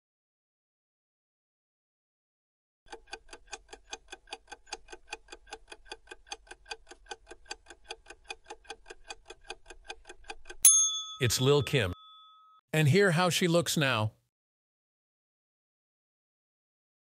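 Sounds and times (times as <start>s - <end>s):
fast clock ticking: 2.9s - 10.6s.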